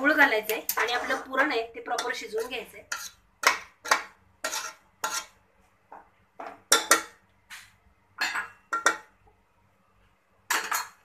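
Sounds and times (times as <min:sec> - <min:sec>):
spoon scraping a metal pot: 0:00.7 - 0:05.4, 0:10.5 - 0:11.0.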